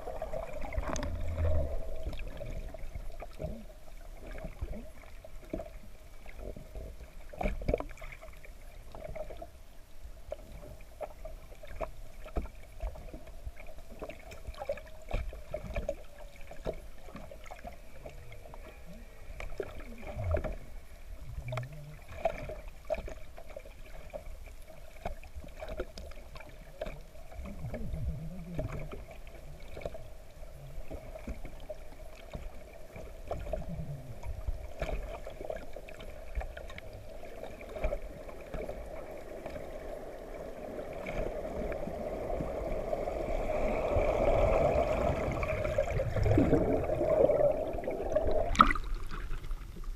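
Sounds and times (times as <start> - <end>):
underwater knocks and bumps: 0.0 - 9.4, 13.9 - 18.8, 19.4 - 24.3, 24.9 - 30.0, 30.7 - 39.7, 44.0 - 49.9
steady underwater hum: 0.0 - 49.9.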